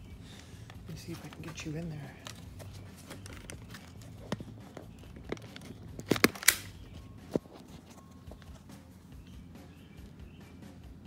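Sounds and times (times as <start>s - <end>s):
camera handling noise: 2.2s - 8.7s.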